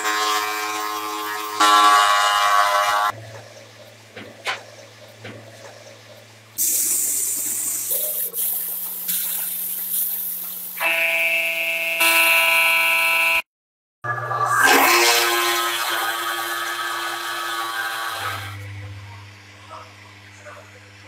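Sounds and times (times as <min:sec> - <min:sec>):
spray paint hissing: 0:06.6 - 0:10.8.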